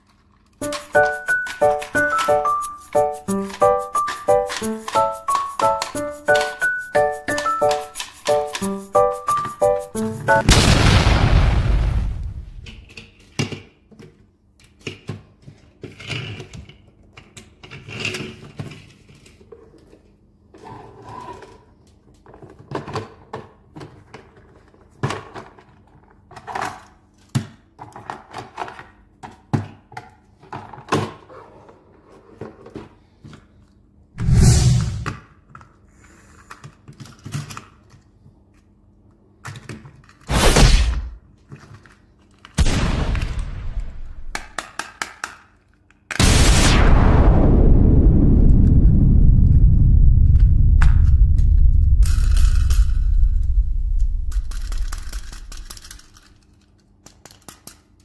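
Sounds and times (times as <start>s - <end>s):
plastic toy trains clacking: 3.4s - 8.7s.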